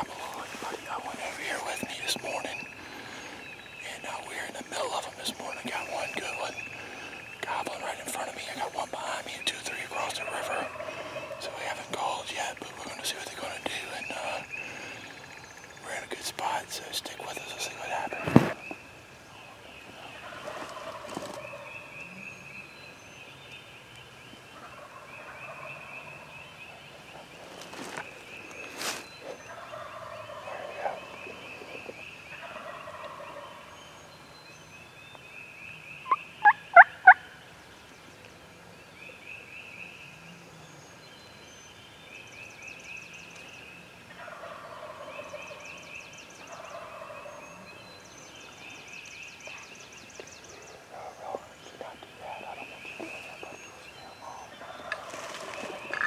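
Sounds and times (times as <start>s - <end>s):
songbirds chirping: 0.0s - 56.0s
wild turkeys gobbling: 10.2s - 11.6s, 20.0s - 21.7s, 24.6s - 25.9s, 28.8s - 33.8s, 36.1s - 37.3s, 44.1s - 45.6s, 46.4s - 47.4s, 50.7s - 56.0s
loud sharp turkey calls: 20.2s - 21.7s, 36.0s - 37.3s, 44.2s - 45.6s, 46.5s - 47.4s, 50.8s - 56.0s.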